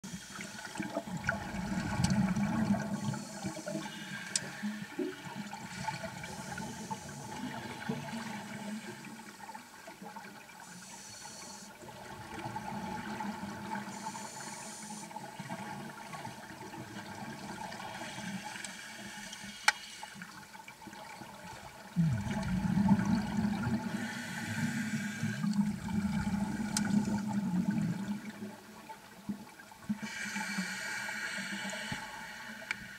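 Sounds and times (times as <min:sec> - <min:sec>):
bubbling of exhaled air: 0:00.9 - 0:03.9, 0:21.9 - 0:28.6
regulator hissing on inhalation: 0:13.9 - 0:15.1, 0:23.8 - 0:25.6, 0:30.0 - 0:32.9.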